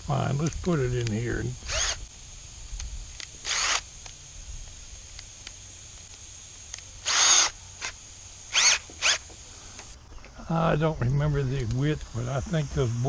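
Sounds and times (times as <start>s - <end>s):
cordless drill motor whirring: 1.0s - 2.1s, 2.7s - 10.0s.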